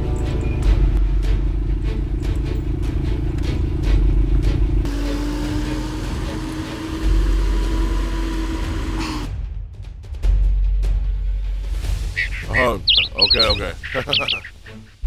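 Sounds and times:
van engine and road rumble: 0.0 - 9.0.

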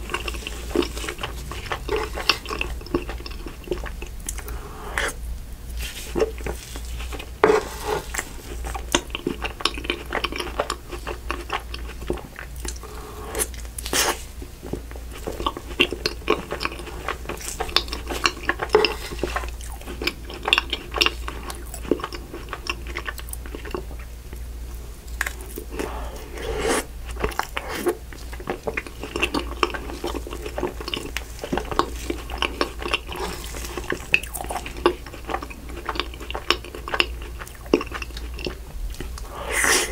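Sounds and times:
wet chewing and lip smacks: 0.0 - 4.6, 13.4 - 24.4, 25.1 - 25.9, 27.1 - 39.3
steady low hum: 0.0 - 39.9.

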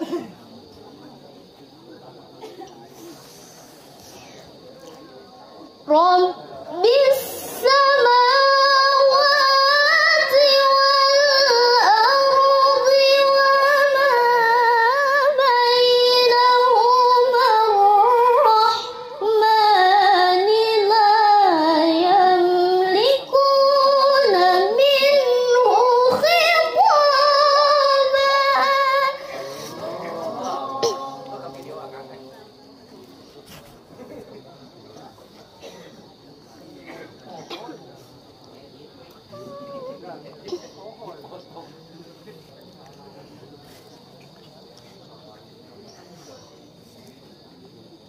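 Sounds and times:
girl reciting melodically: 5.7 - 32.0.

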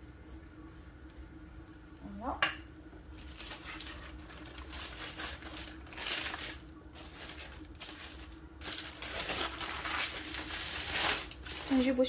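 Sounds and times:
paper rustling and crinkling: 3.2 - 12.0.

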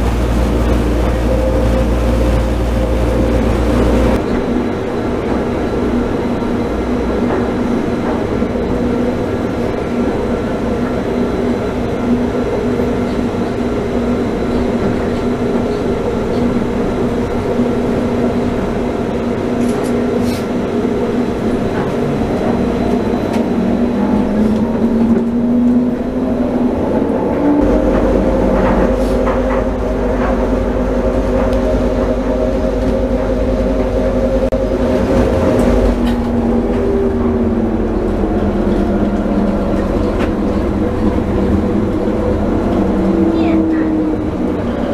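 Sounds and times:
train motor whine: 0.0 - 4.5
deep train rumble: 0.0 - 44.9
train tyres and motors humming: 0.0 - 44.9.

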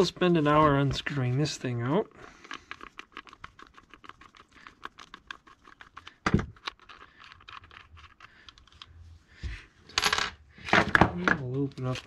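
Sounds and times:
screwdriver clicking and scratching: 2.5 - 8.9.

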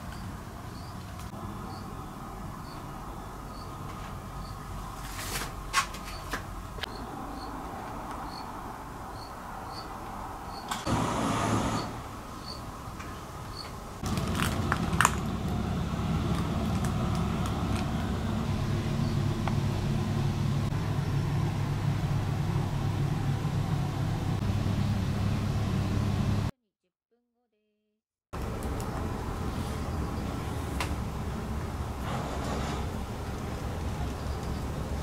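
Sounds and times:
low motor hum: 14.0 - 26.5.

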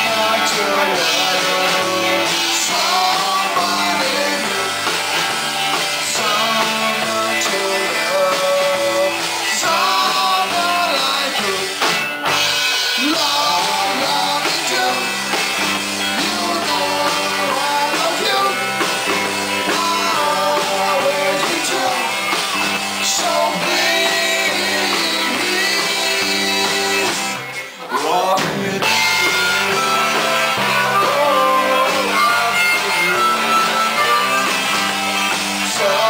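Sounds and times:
person singing: 0.0 - 5.1, 5.7 - 12.0, 12.8 - 36.0
rock band playing live: 0.0 - 36.0.

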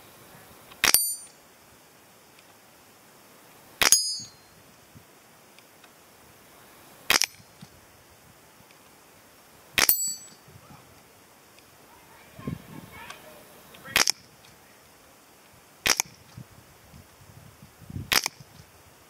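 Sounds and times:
air rifle shots: 0.8 - 1.3, 3.8 - 4.4, 7.1 - 7.4, 9.8 - 10.3, 13.9 - 14.2, 15.8 - 16.2, 18.1 - 18.4
steel target ringing: 0.8 - 1.4, 3.8 - 4.5, 9.8 - 10.4.

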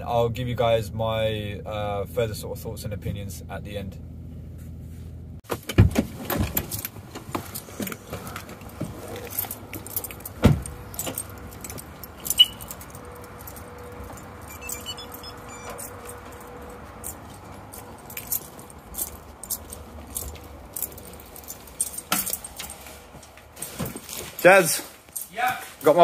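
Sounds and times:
outdoor background noise: 0.0 - 26.0
keys jangling: 8.6 - 23.3, 24.0 - 25.6.

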